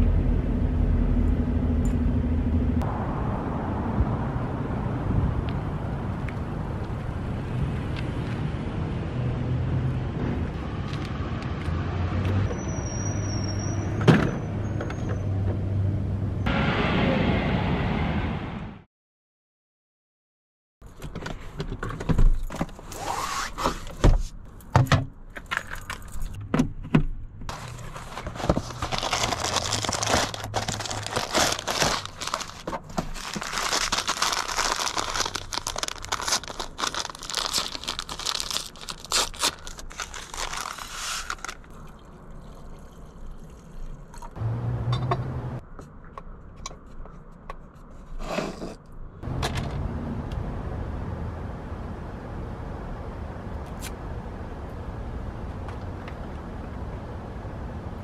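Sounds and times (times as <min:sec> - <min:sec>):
paper packaging crinkling: 0:27.5 - 0:41.7.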